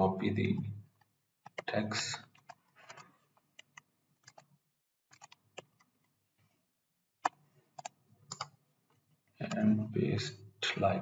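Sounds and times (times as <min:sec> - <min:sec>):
computer keyboard keys clicking: 0:01.4 - 0:01.7, 0:02.3 - 0:03.0, 0:03.6 - 0:04.5, 0:05.1 - 0:05.9, 0:07.2 - 0:08.5.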